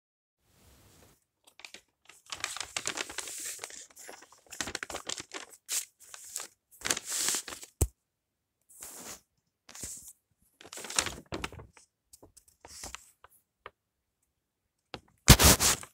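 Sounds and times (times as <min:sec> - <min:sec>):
paper rustling and crinkling: 0:01.0 - 0:07.8, 0:08.8 - 0:13.3, 0:15.3 - 0:15.9.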